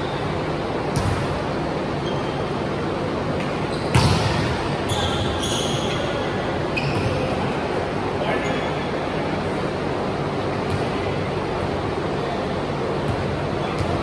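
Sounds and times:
large hall noise: 0.0 - 14.0
brief high squeaks: 4.9 - 6.2.

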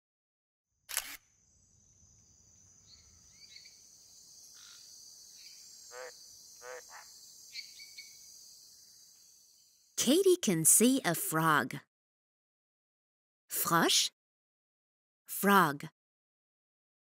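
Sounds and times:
crickets chirring: 1.2 - 10.0
frog croaks: 4.5 - 8.3.

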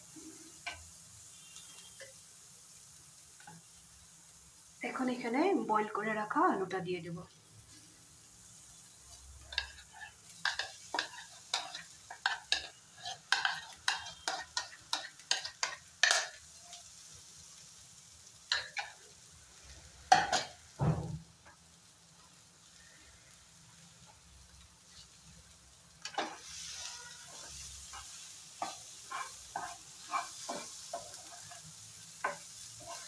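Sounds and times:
faint sizzle: 0.0 - 33.0
metal spoon scraping frying pan: 9.1 - 16.4, 26.0 - 33.0.

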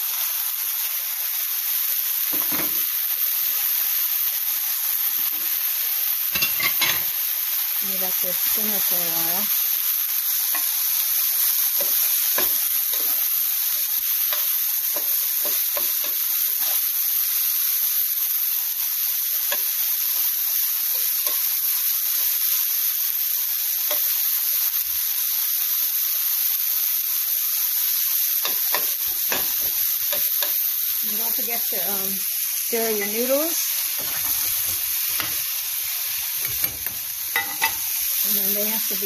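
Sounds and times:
food sizzling in a frying pan: 0.0 - 39.0
spatula scraping a pan: 36.4 - 38.0.

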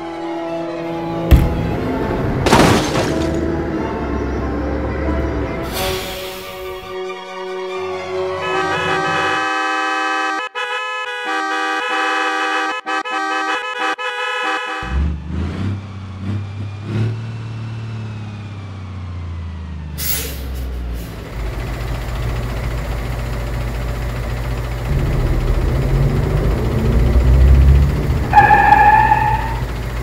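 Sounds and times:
heavy bus engine running: 0.0 - 10.4, 14.8 - 30.0
bus horn blaring: 3.7 - 15.2, 24.9 - 29.9
air brakes hissing: 5.6 - 6.9, 20.0 - 21.3.

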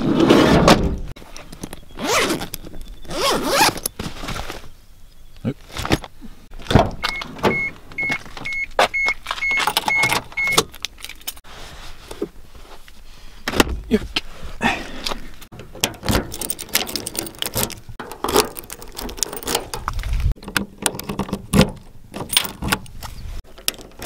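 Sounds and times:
gear rustling and knocking: 15.6 - 24.0.

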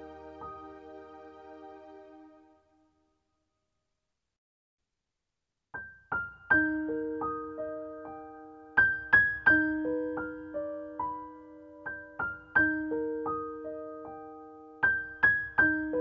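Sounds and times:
slow piano melody: 0.0 - 2.8, 6.1 - 16.0.

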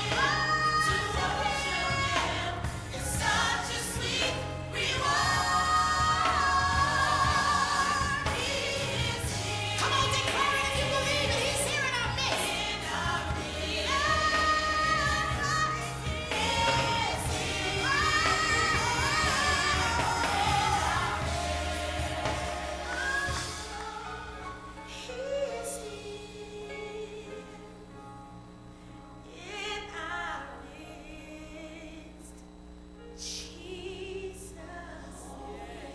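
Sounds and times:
bass accompaniment: 0.0 - 26.6
voices singing gospel: 0.0 - 27.8, 33.2 - 35.9.

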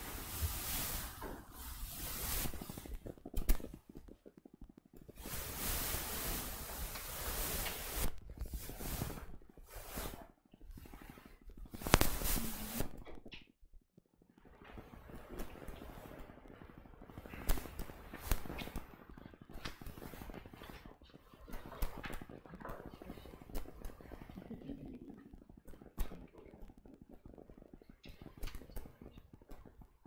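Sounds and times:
microphone handling rustle: 11.4 - 13.1.

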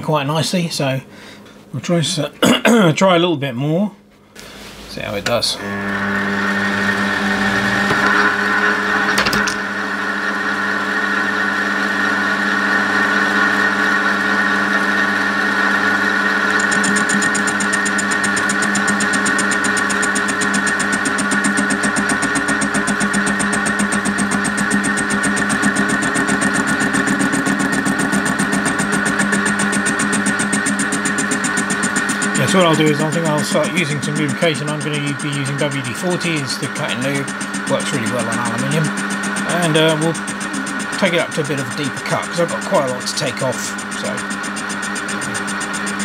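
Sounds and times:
fast even pulsing: 4.9 - 46.0
metal lathe whining: 5.3 - 46.0.

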